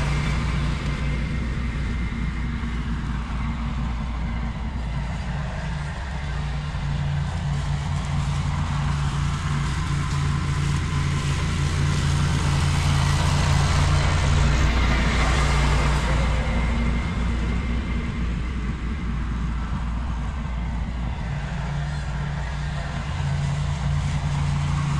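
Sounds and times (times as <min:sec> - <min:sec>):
tractor engine drone: 0:00.0 - 0:24.9.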